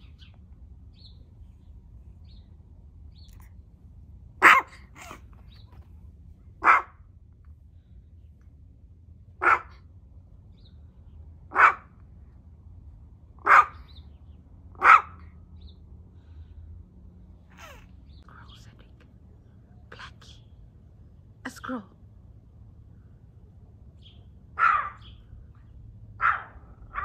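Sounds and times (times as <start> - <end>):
small dog barking: 4.4 - 5.3, 6.6 - 7.0, 9.4 - 9.8, 11.5 - 12.0, 13.4 - 13.9, 14.7 - 15.3, 24.6 - 25.2, 26.2 - 27.0.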